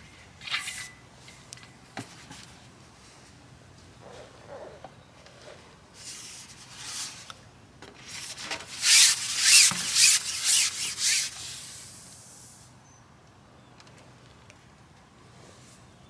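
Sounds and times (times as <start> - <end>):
fishing pole scraping hiss: 8.1 - 12.7.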